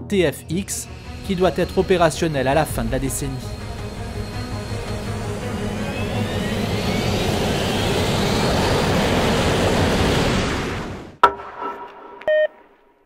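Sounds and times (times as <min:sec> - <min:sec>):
sharp hit: 0:00.1 - 0:08.0
short electronic tone: 0:00.3 - 0:08.4
jet engine roaring with whine: 0:00.4 - 0:11.2.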